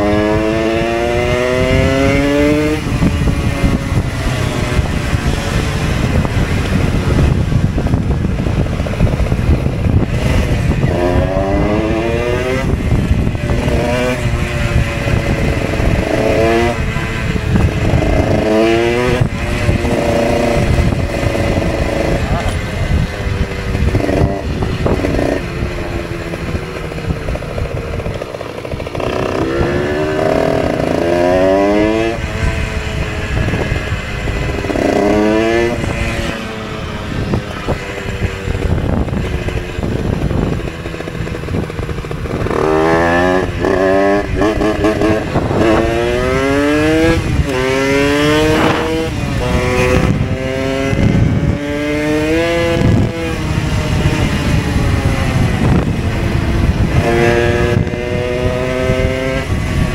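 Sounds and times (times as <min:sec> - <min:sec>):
moped engine accelerating: 0:00.0 - 0:59.9
wind rush on microphone: 0:00.0 - 0:59.9.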